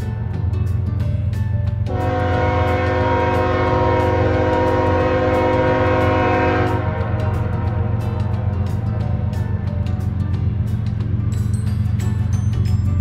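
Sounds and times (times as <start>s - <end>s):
train rumble: 0.0s - 13.0s
locomotive air horn blast: 1.9s - 9.3s.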